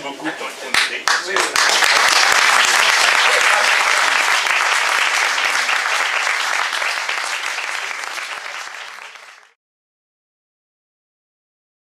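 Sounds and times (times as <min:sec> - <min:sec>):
audience applauding: 0:00.8 - 0:09.6.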